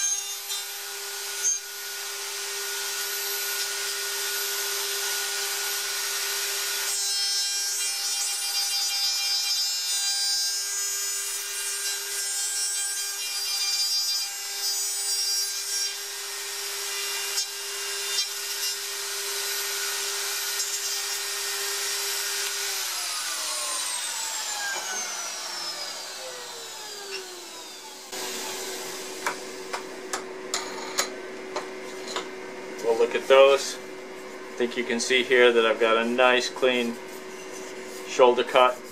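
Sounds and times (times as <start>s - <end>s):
router cutting wood: 0.0s - 30.2s
router spinning down: 21.6s - 29.5s.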